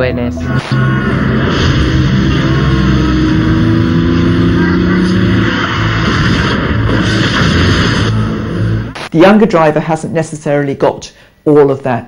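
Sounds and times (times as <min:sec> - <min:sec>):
car engine running: 0:00.4 - 0:09.0
road noise: 0:00.5 - 0:09.0.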